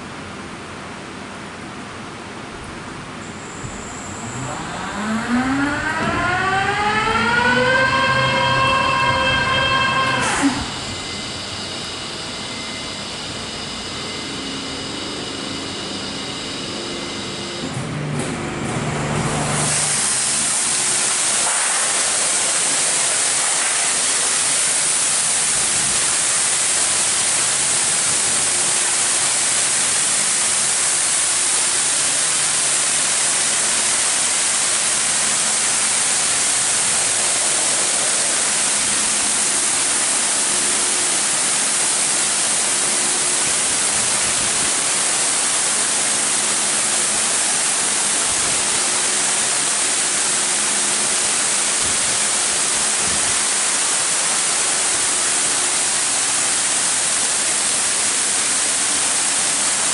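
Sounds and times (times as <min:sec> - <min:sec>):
high-pressure water jets hissing: 0:19.6 - 0:59.9.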